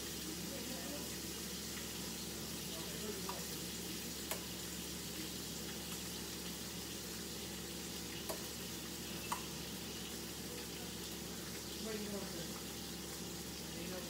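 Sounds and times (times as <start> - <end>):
fish sizzling in a pan: 0.0 - 14.0.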